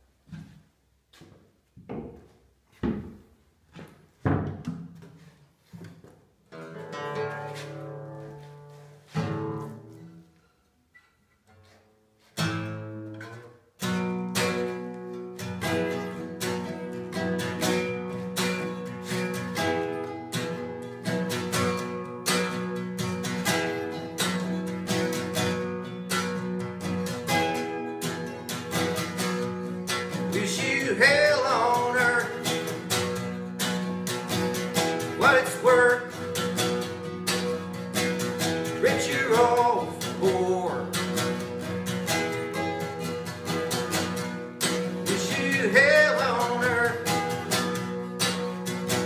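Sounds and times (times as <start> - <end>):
guitar knocks and bumps: 1.8 - 7.6
acoustic guitar strumming: 6.4 - 49.0.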